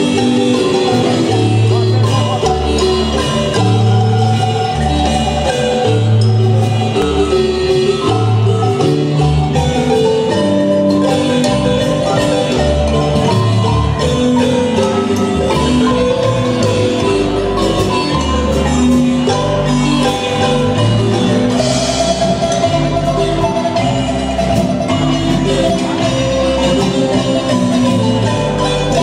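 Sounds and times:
marimba melody: 0.0s - 29.0s.

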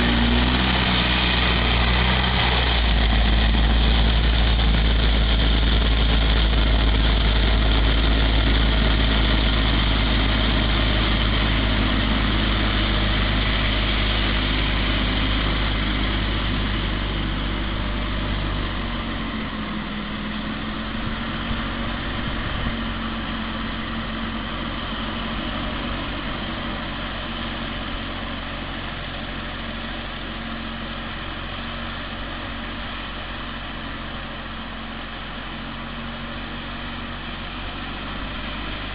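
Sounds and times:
strong low rumble: 0.0s - 28.5s
snow thrower throwing snow: 0.0s - 38.9s
tractor engine running: 0.0s - 38.9s.

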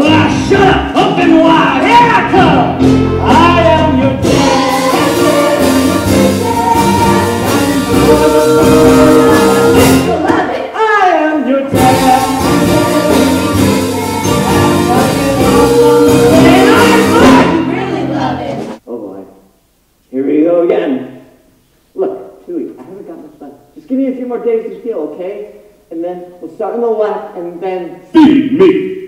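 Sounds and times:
band accompaniment: 0.0s - 10.4s, 11.7s - 18.8s
man singing lead: 0.0s - 18.2s
backing voices singing: 0.0s - 18.8s.

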